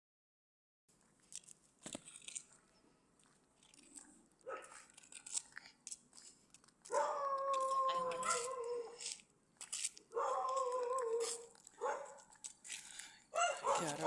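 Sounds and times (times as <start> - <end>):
footsteps crunching on gritty street: 1.2 - 14.0
dog howling: 6.9 - 9.0, 10.2 - 12.1, 13.4 - 14.0.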